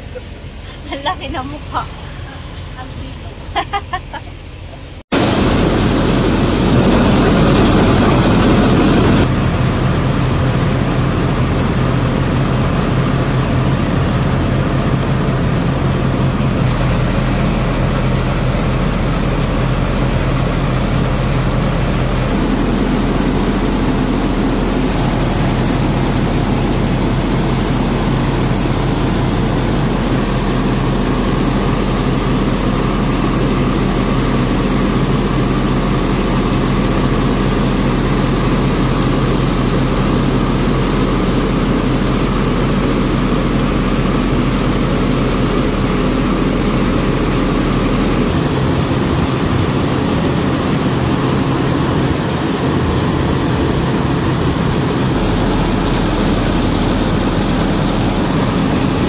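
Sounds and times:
rice mill machine drone: 0:05.0 - 0:59.0.

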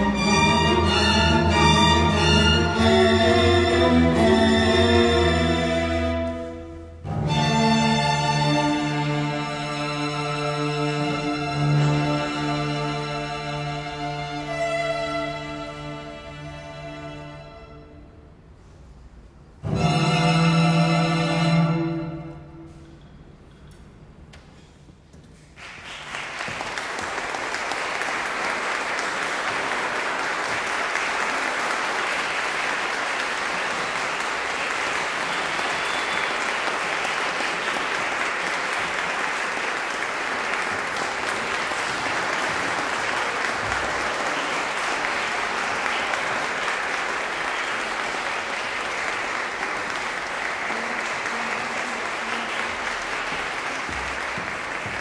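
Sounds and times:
audience applauding: 0:25.6 - 0:55.0.

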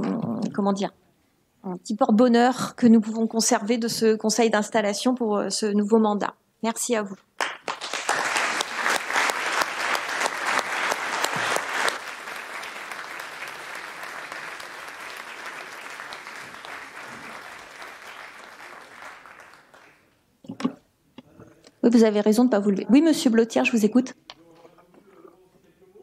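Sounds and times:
people clapping: 0:07.4 - 0:20.2.

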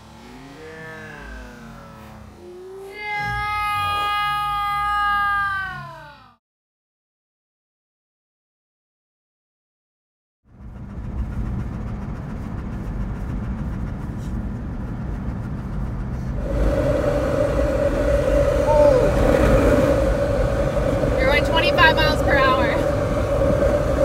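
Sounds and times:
vehicle engine and tyres rumbling: 0:00.0 - 0:05.3, 0:10.4 - 0:24.0
mid-pitched hum: 0:00.0 - 0:05.8, 0:10.5 - 0:24.0.

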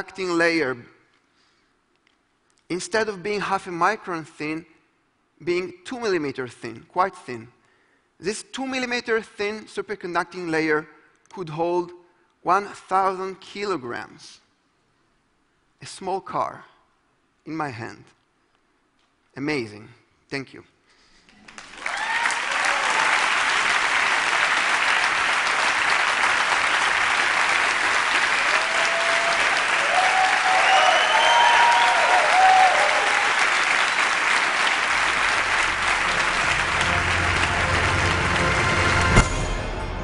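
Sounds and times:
audience applauding: 0:21.4 - 0:39.3
low music: 0:34.9 - 0:40.0.

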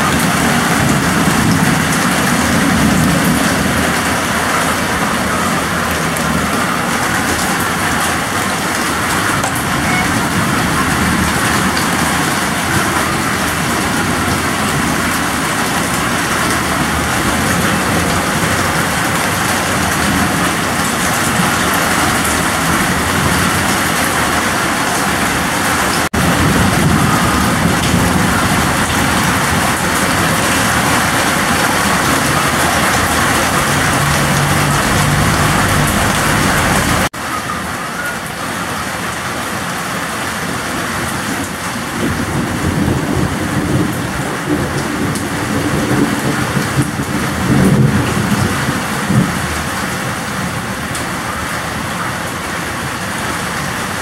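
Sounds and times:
heavy rain pouring: 0:00.0 - 0:54.0
deep low rumble: 0:32.2 - 0:37.1.

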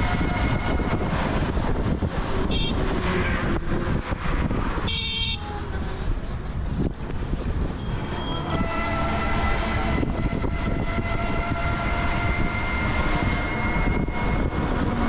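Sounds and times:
traffic noise: 0:00.0 - 0:15.0
wind rumble: 0:00.0 - 0:15.0
vehicle horn toots: 0:02.5 - 0:02.8, 0:04.9 - 0:05.5, 0:07.8 - 0:14.5.

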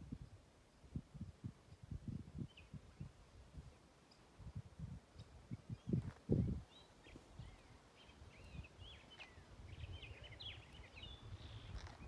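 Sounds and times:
faint birdsong chirps: 0:00.1 - 0:04.5, 0:05.1 - 0:12.0.

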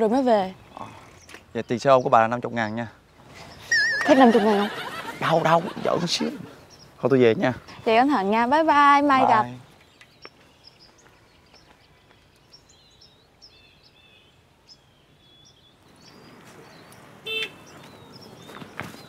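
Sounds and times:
small birds chirping: 0:00.0 - 0:19.0
street traffic noise: 0:00.0 - 0:19.0
short car honk: 0:17.2 - 0:17.6.

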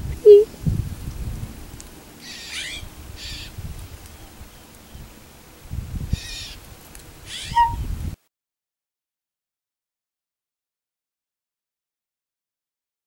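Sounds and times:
songbird hissing calls: 0:02.2 - 0:05.3, 0:06.1 - 0:07.9.

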